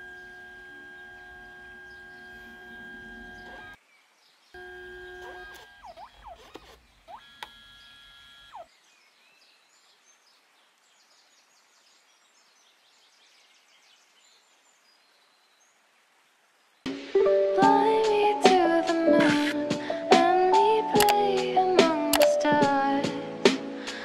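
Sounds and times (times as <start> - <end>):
photo printer motor whine: 0.0 - 3.8, 4.6 - 8.7
printer pitch glides: 0.0 - 3.8
faint outdoor hiss: 0.0 - 24.0.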